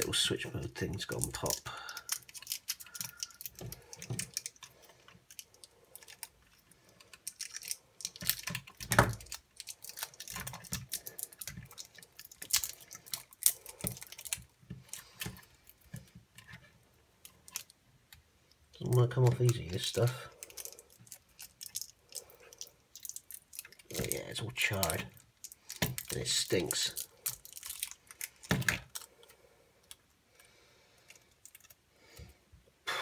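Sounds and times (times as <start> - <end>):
fingers handling circuit board: 0.8 - 18.3.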